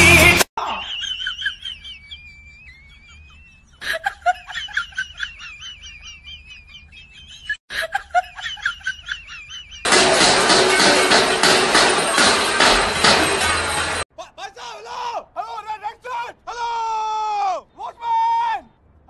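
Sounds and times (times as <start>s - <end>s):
high-pitched laughter: 0.6s - 9.9s.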